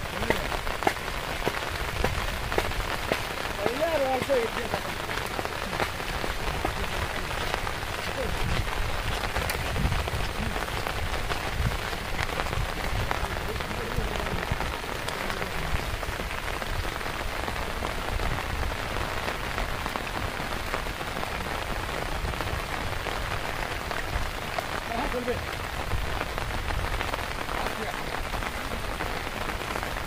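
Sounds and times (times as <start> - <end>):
heavy rain on water: 0.0 - 30.0
rain drops on umbrella: 0.0 - 30.0.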